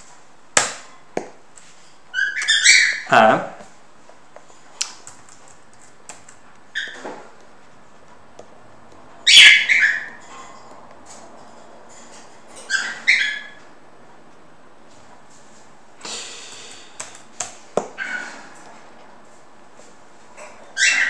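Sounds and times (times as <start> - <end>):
high-pitched animal calls: 2.1 - 3.4, 9.2 - 10.2, 12.6 - 13.6, 20.7 - 21.0.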